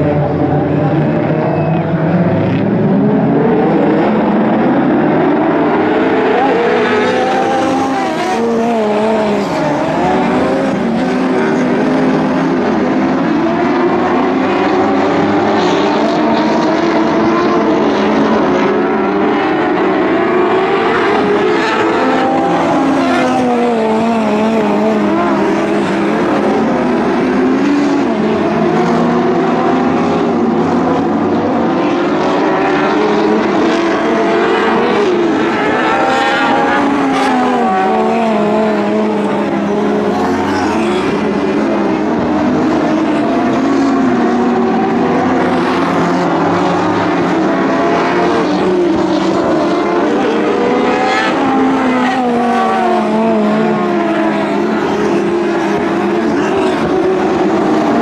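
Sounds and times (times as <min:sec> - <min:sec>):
racing car engines revving: 0:00.0 - 0:58.0.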